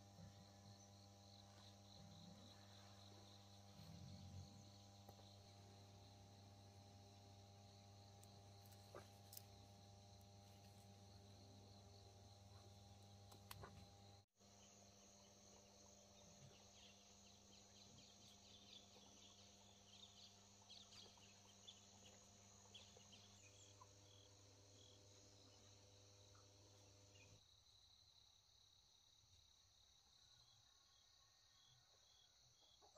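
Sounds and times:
crickets and insects chirring: 0:00.0 - 0:32.8.

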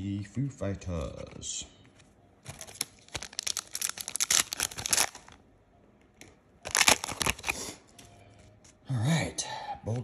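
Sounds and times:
foil wrapper crinkling and tearing: 0:02.5 - 0:05.4, 0:06.6 - 0:07.7.

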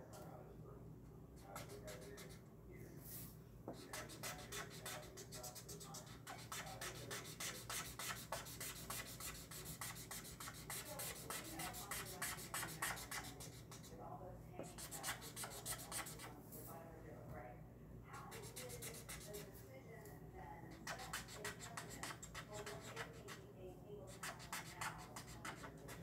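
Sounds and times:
marker scribbling on paper: 0:01.4 - 0:02.4, 0:03.7 - 0:13.9, 0:14.6 - 0:16.3, 0:18.2 - 0:19.5, 0:20.7 - 0:23.4, 0:24.0 - 0:26.0.

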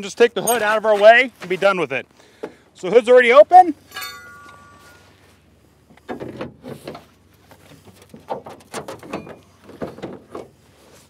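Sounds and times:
metal pry bar clinking: 0:00.4 - 0:00.8, 0:03.8 - 0:05.0.

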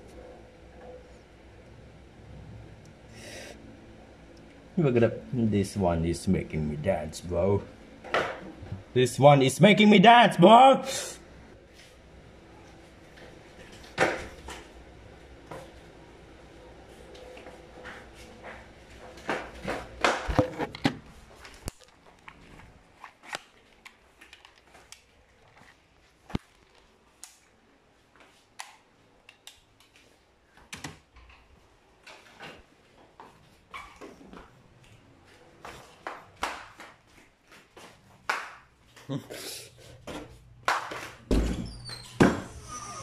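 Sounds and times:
steady hum: 0:00.0 - 0:21.8.

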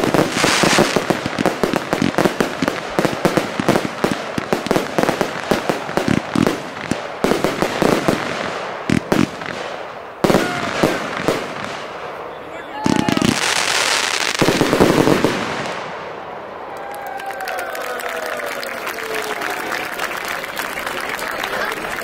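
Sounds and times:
fireworks bangs and crackling: 0:00.0 - 0:16.7.

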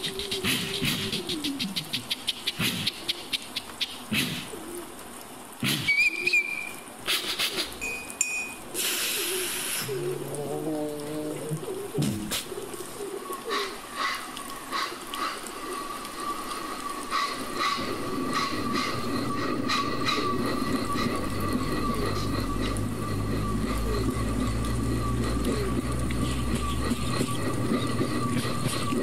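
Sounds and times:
vocal imitation of electric train: 0:00.0 - 0:04.7, 0:08.7 - 0:29.0
clicks like wheels over rail joints: 0:11.4 - 0:29.0
steady high whine: 0:15.2 - 0:29.0
low motor hum: 0:17.8 - 0:29.0.

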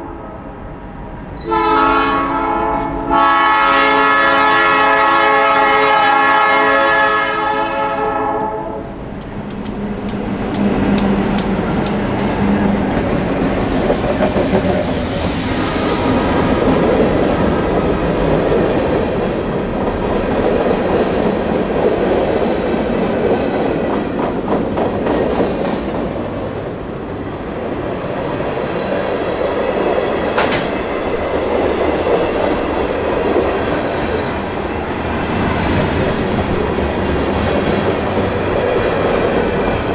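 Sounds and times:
train wheels rumbling: 0:00.0 - 0:39.9
locomotive horn: 0:01.4 - 0:09.0
rail joint clicking: 0:07.9 - 0:15.6, 0:27.9 - 0:39.9.

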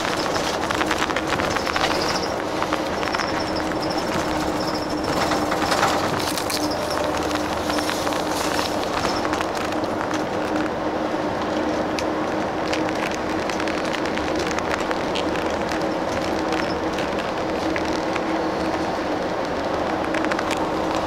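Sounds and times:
small rattles: 0:00.0 - 0:10.7
bus engine and road drone: 0:00.0 - 0:21.0.

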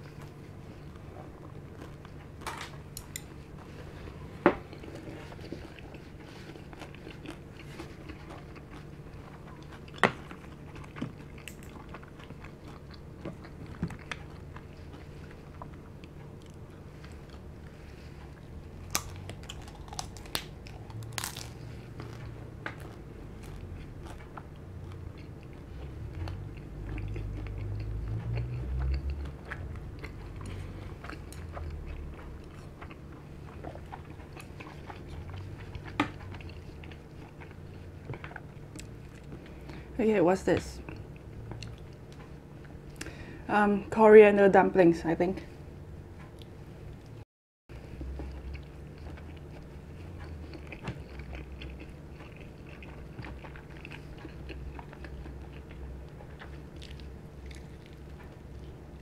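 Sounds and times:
chewing: 0:00.0 - 0:39.9, 0:40.6 - 0:43.3, 0:46.2 - 0:59.0
crunchy food crunching: 0:04.1 - 0:39.8, 0:47.8 - 0:59.0.

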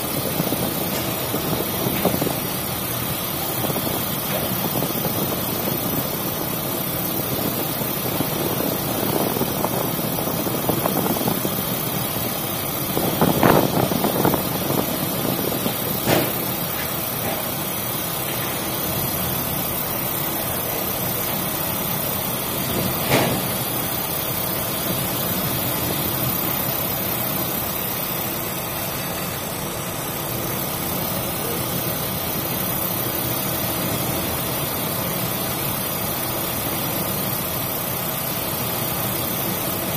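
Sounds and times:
ship engine running: 0:00.0 - 0:39.9
wind and sea noise: 0:07.3 - 0:16.4.

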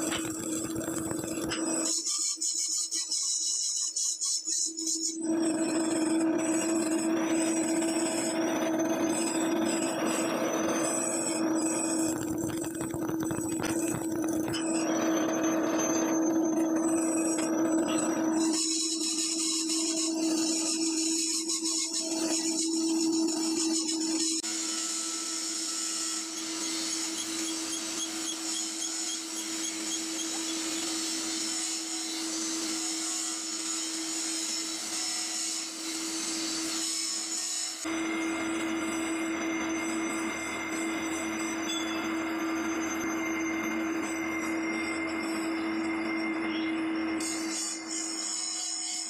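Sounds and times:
drill bit grinding steel: 0:00.0 - 0:49.0
drill motor hum: 0:05.3 - 0:19.4.

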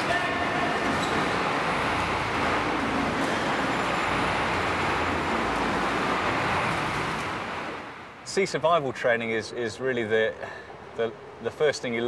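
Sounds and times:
rushing water and wind: 0:00.0 - 0:08.9.

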